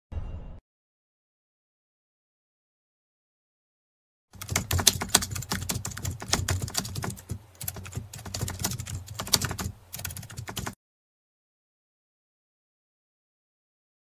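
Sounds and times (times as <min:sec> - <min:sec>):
rapid keyboard typing: 0:04.4 - 0:10.8.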